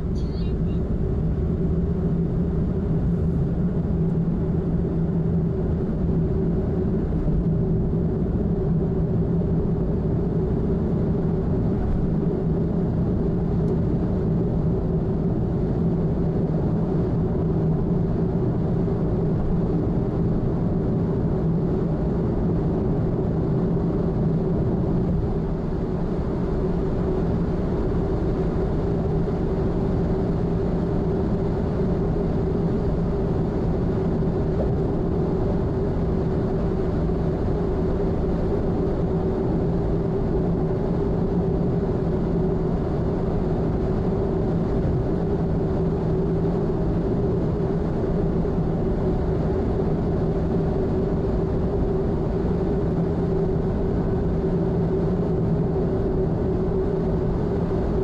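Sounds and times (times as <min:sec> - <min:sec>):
car engine drone: 0:00.0 - 0:58.0.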